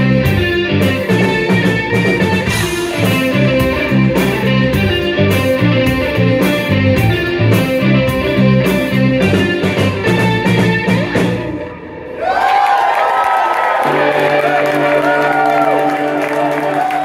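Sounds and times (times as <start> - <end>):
live band playing: 0.0 - 12.3, 13.8 - 17.0
audience cheering and whooping: 12.0 - 17.0.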